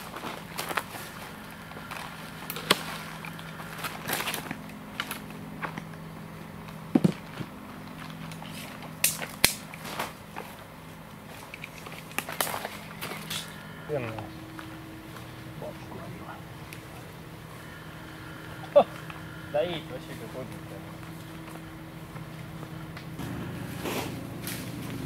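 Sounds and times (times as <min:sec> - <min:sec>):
twigs clicking and cracking: 0:00.0 - 0:23.2
branches rustling: 0:00.0 - 0:25.0
steady low hum: 0:00.0 - 0:25.0.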